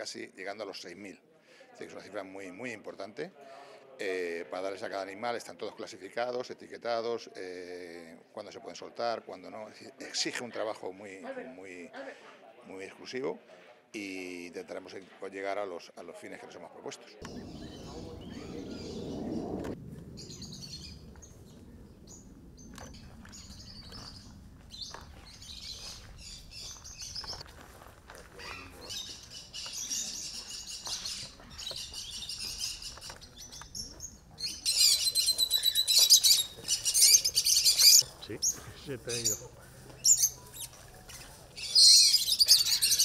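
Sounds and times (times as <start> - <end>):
low rushing noise: 17.2 - 24.6
small birds chirping: 17.2 - 27.5, 28.4 - 43.0.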